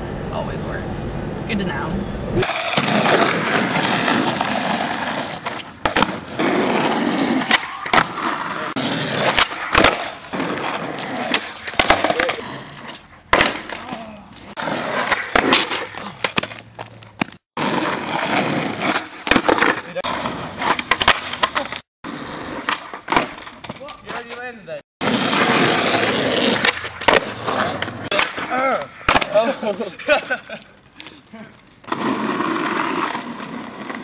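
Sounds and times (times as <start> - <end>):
skateboard wheels rolling on asphalt: 2.3 - 34.0
skateboard clacking on pavement: 2.8 - 12.5, 18.8 - 21.8, 25.0 - 29.8.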